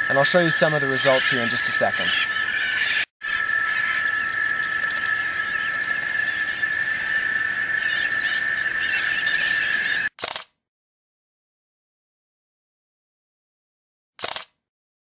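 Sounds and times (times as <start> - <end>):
parrots squawking: 0.0 - 10.1
steady high-pitched whine: 0.0 - 10.1.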